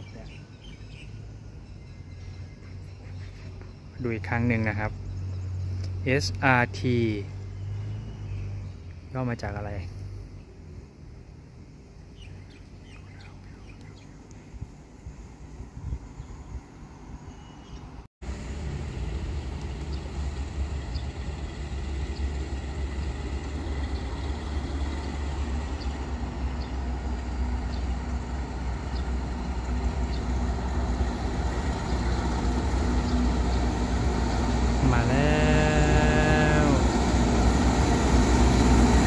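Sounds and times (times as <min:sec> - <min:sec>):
locomotive engine hum: 0:17.8 - 0:39.0
freight train rumble: 0:18.2 - 0:39.0.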